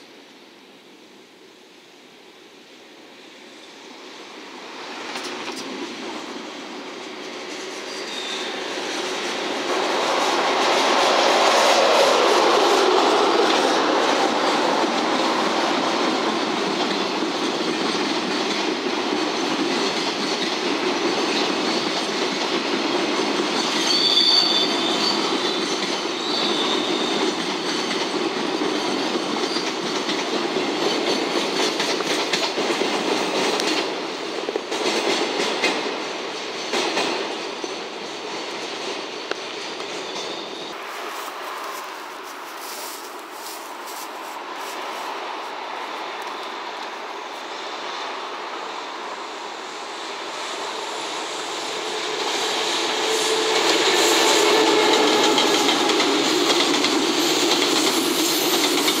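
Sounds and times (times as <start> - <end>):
freight train passing: 0.0 - 59.0
high wheel squeals: 7.7 - 9.2, 23.6 - 27.9, 39.2 - 41.8
wheels clacking over rail joints: 53.1 - 59.0.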